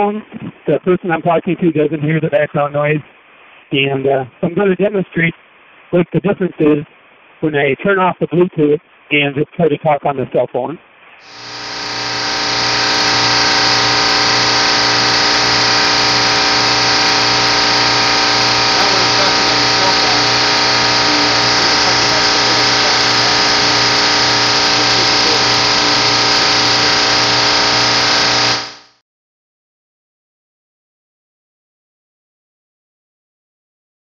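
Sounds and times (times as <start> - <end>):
chiller machine running: 11.2 - 29.0.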